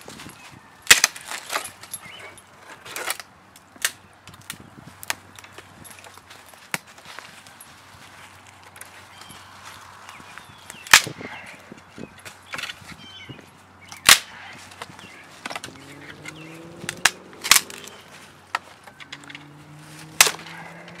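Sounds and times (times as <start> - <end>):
dry sticks snapping: 0.8 - 2.0, 2.9 - 7.2, 10.6 - 11.3, 13.9 - 21.0.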